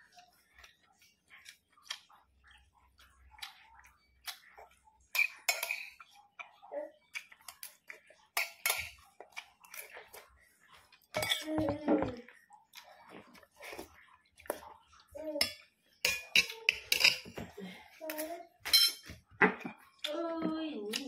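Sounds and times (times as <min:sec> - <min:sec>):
metal spoon scraping ceramic plate: 0:18.7 - 0:19.0.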